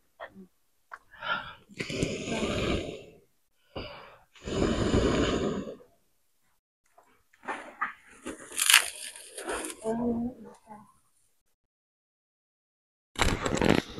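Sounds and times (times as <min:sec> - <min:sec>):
person blowing on embers: 0:01.8 - 0:03.3, 0:04.4 - 0:05.8.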